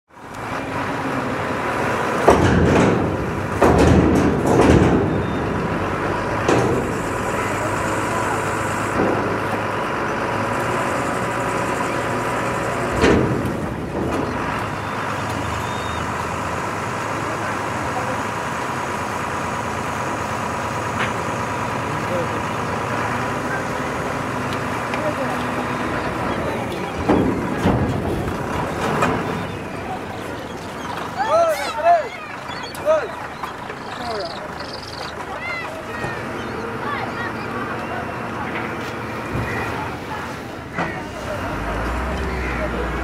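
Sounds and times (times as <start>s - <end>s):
rumble of vehicle engines: 0.1s - 43.0s
faint voices: 0.2s - 43.0s
loud bursts of noise: 0.4s - 31.2s.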